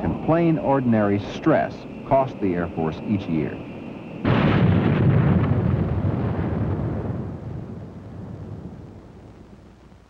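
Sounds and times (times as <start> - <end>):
explosion rumble: 4.2 - 10.0.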